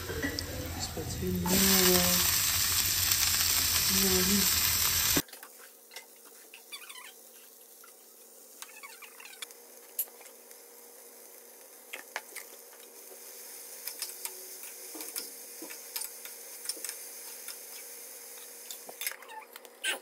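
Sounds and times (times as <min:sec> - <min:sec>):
ferns sizzling in a frying pan: 0:00.2 - 0:19.1.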